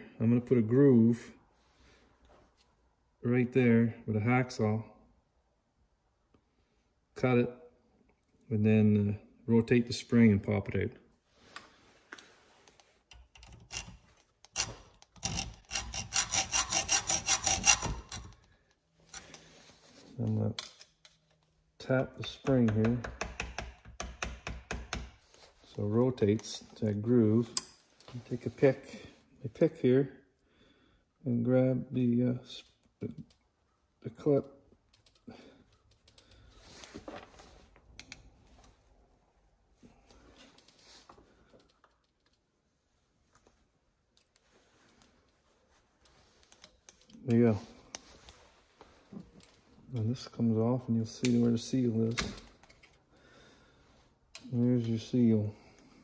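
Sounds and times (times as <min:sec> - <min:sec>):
steel pick scraping metal: 0:13.1 - 0:19.4
hacksaw cutting metal: 0:13.4 - 0:18.4.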